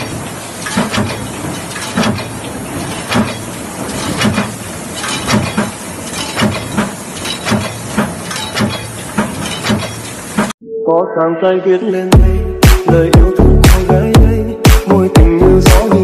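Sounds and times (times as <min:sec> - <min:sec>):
light metallic clanks: 0:00.0 - 0:10.5
stamping press heavy strokes: 0:00.0 - 0:10.6.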